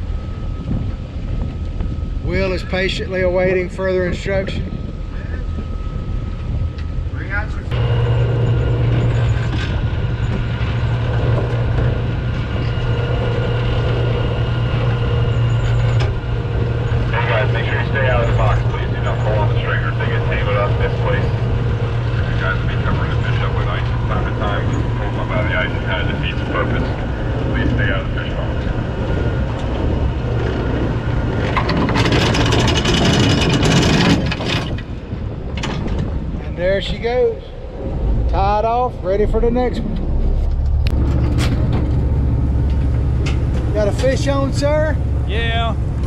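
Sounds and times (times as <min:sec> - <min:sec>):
boat engine droning: 0:00.0 - 0:46.0.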